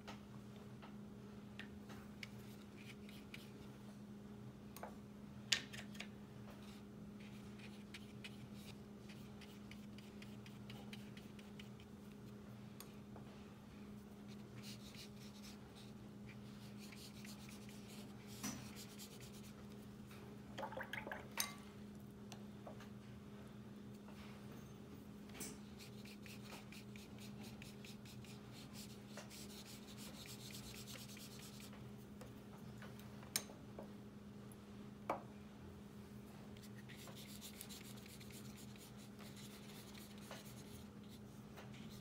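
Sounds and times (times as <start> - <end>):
brush tapping and rubbing on paper: 7.2 - 11.9, 14.3 - 19.6, 25.8 - 31.7, 36.6 - 42.0.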